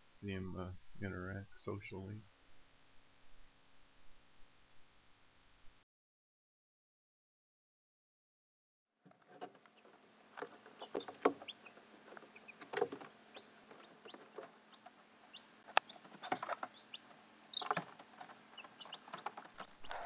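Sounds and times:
chicks peeping: 9.7 - 20.0.

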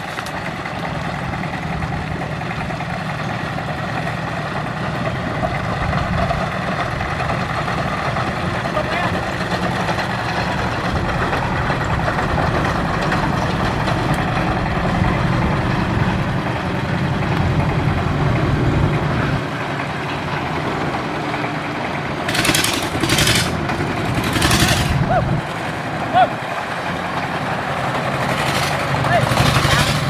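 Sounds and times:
propeller churning water: 0.0 - 30.0
boat engine running: 21.6 - 30.0.

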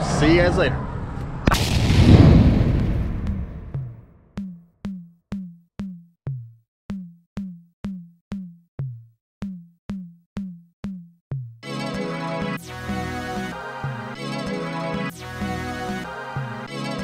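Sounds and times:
explosion sound effect: 0.8 - 4.3.

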